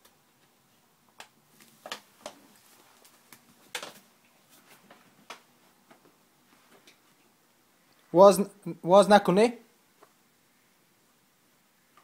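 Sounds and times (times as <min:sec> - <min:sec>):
sharp plastic crackles: 0:01.1 - 0:04.1.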